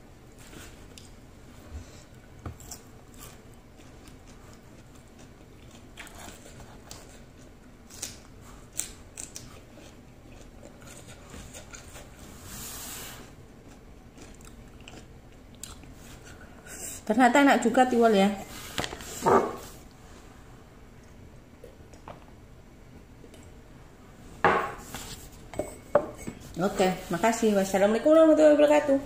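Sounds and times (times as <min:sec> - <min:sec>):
person chewing food: 0:02.1 - 0:12.3, 0:13.4 - 0:16.5.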